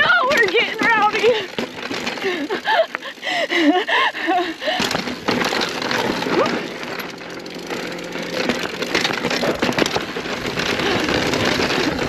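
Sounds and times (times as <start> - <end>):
bike rattling and clatter: 0.0 - 12.0
tyres crunching over gravel: 0.0 - 12.0.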